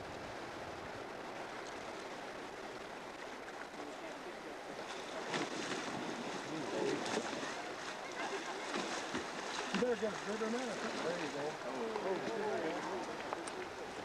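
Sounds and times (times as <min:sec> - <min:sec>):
river water rushing: 0:00.0 - 0:14.0
faint voices: 0:03.6 - 0:14.0.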